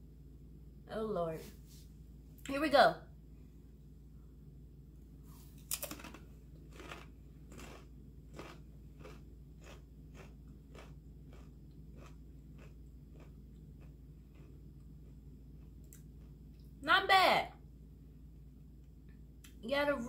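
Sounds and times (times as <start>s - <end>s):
crunching tortilla chip: 5.6s - 16.4s.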